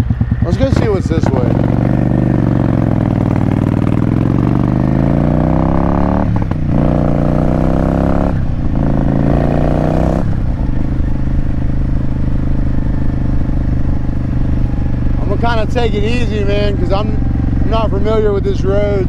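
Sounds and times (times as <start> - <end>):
motorcycle engine accelerating: 0.0 - 19.0.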